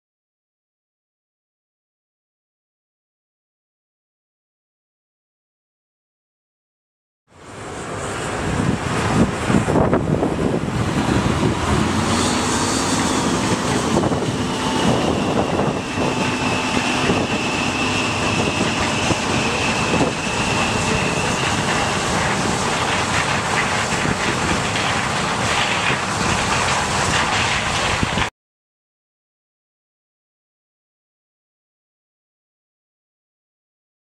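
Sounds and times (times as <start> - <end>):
high machine whine: 7.3 - 28.2
combine harvester drone: 7.3 - 28.3.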